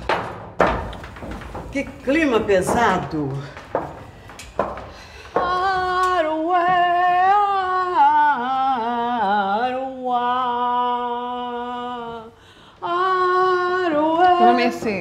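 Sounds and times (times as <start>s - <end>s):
person singing wordless melody: 5.3s - 15.0s.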